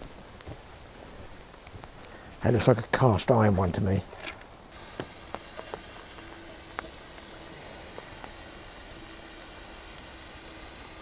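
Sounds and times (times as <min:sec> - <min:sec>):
meat sizzling in a pan: 0:04.7 - 0:11.0.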